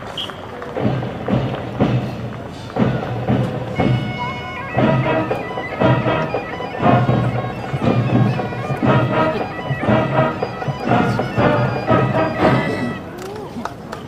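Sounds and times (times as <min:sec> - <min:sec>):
marching band playing: 0:00.1 - 0:13.2
heavy drum strokes: 0:00.8 - 0:13.0.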